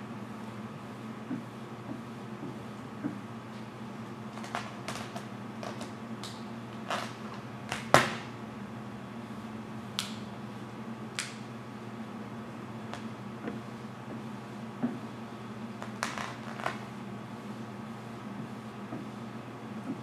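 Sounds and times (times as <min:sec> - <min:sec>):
steady low hum: 0:00.0 - 0:20.0
vinyl film crackling: 0:04.3 - 0:08.0, 0:15.7 - 0:16.9.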